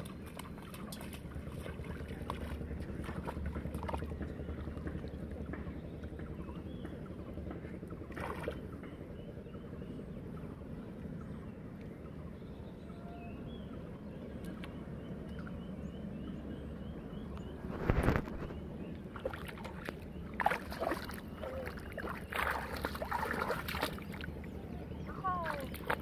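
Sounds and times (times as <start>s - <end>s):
floodwater sloshing and splashing: 0.0s - 6.2s, 7.6s - 8.8s, 17.6s - 26.0s.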